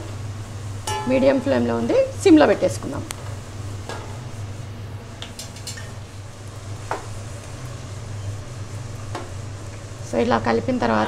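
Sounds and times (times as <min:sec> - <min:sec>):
onions sizzling in oil: 0:00.0 - 0:11.0
steady low hum: 0:00.0 - 0:11.0
metal ladle clinking on pot: 0:00.9 - 0:01.2.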